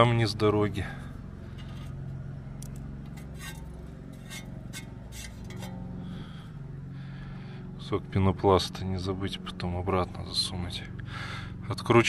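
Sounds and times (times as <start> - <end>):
low hum: 0.0 - 12.0
small parts clicking and clinking: 2.6 - 5.8.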